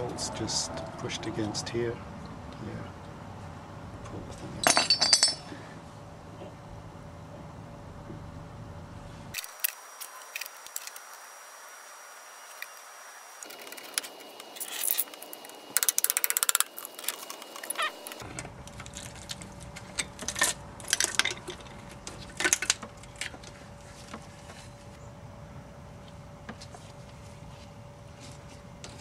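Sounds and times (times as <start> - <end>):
wrench and bolts clinking: 4.6 - 5.6.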